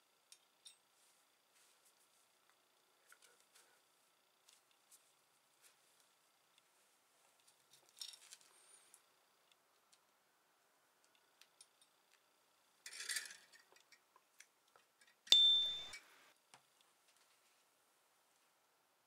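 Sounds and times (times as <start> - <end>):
metal file clinking on vise: 15.3 - 16.0.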